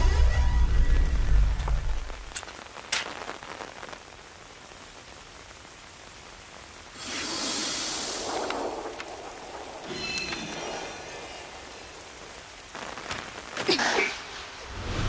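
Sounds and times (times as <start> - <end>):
steady rain falling: 0.0 - 15.0
hissing swell: 7.0 - 12.4.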